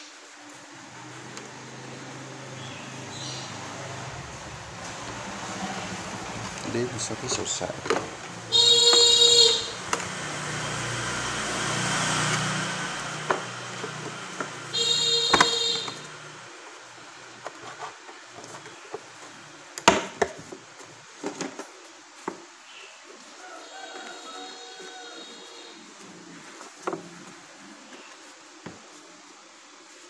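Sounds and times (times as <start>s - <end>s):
boards knocking together: 7.7s - 9.1s, 13.2s - 16.0s, 19.8s - 20.6s
loud high whines: 8.4s - 16.5s.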